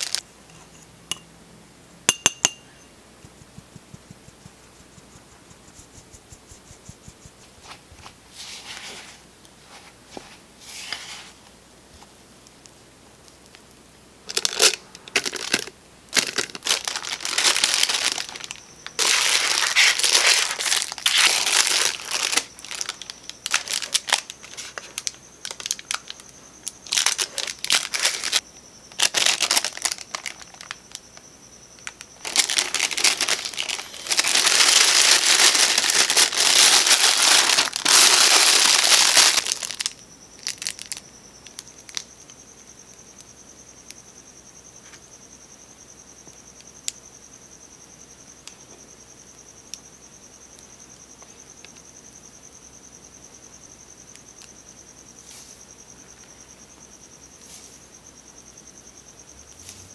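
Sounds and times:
plastic piping bag crinkling: 0:00.0 - 0:00.2, 0:14.3 - 0:30.9, 0:31.8 - 0:41.0
faint high whine: 0:00.0 - 0:59.9.

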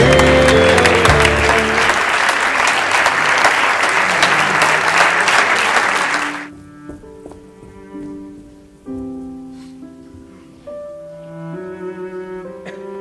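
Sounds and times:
music: 0:00.0 - 0:02.4, 0:06.5 - 0:13.0
audience applauding: 0:00.0 - 0:06.5
quiet string music: 0:06.5 - 0:13.0.

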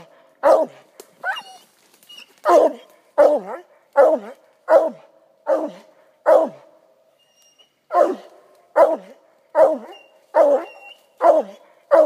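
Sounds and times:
hound barking: 0:00.4 - 0:01.4, 0:02.4 - 0:06.8, 0:07.9 - 0:12.0.

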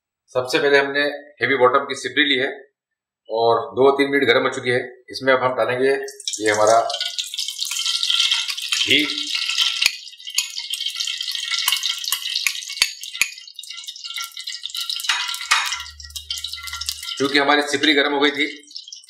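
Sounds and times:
ghee sizzling and popping in pot: 0:06.0 - 0:19.0.

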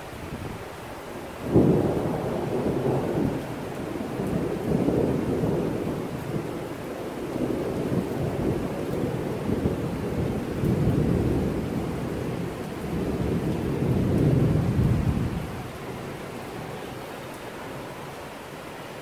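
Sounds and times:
steady rain: 0:00.0 - 0:19.0
thunder rumbling: 0:01.4 - 0:18.1.

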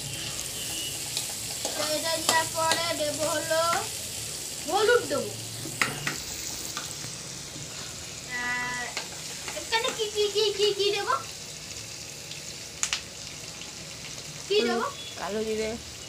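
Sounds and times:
vegetables sizzling in oil: 0:00.0 - 0:16.0
metal spatula scraping a wok: 0:00.1 - 0:02.5.

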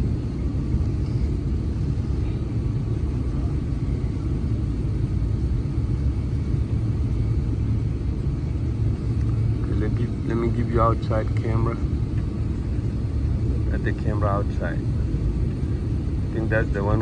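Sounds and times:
airliner cabin engine rumble: 0:00.0 - 0:17.0.

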